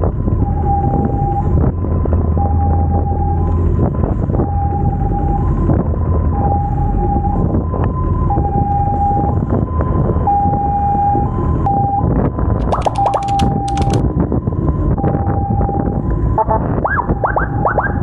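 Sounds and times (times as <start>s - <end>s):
traffic: 0.0s - 18.0s
two-tone emergency siren: 0.0s - 18.0s
motorcycle engines rumbling: 12.4s - 18.0s.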